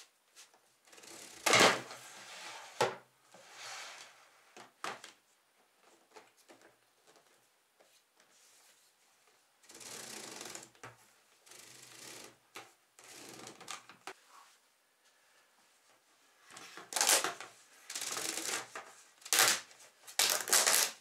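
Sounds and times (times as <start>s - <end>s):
plastic ducts crinkling rattle: 19.3s - 21.0s.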